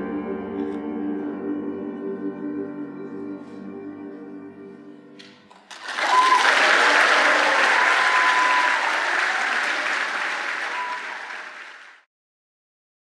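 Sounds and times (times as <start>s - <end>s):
audience applauding: 5.5s - 12.1s.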